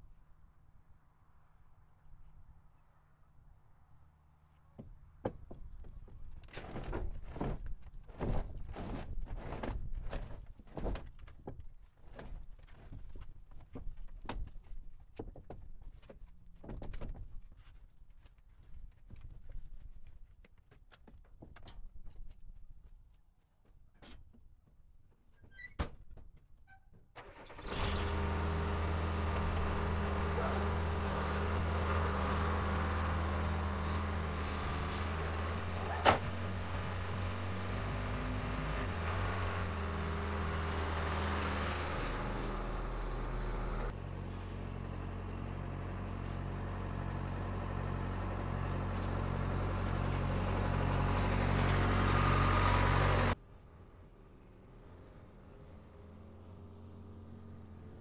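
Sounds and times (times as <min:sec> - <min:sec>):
diesel engine running: 0:27.2 - 0:53.4.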